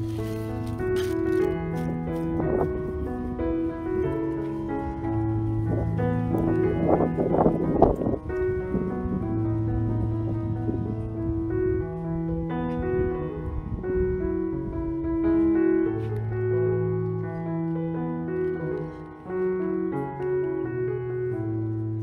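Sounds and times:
slow keyboard melody: 0.0 - 22.0.

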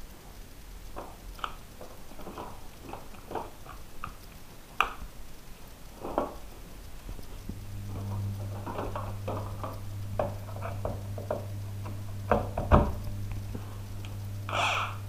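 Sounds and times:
plastic bag rustling: 0.9 - 4.8.

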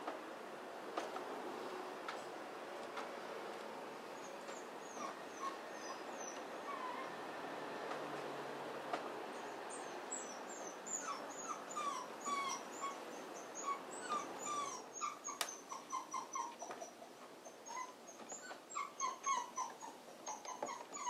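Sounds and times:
dog whimpering: 4.2 - 7.2, 9.8 - 21.0.

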